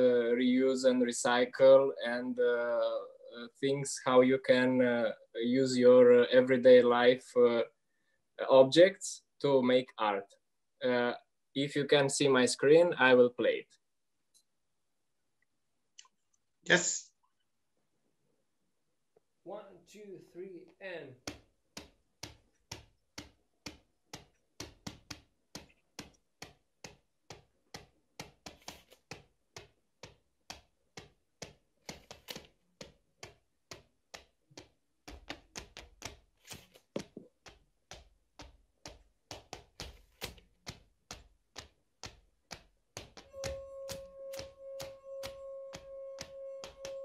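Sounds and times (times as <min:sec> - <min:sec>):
slippered feet tapping wooden floor: 0:21.2 - 0:47.0
deeper percussion layer: 0:43.3 - 0:47.0.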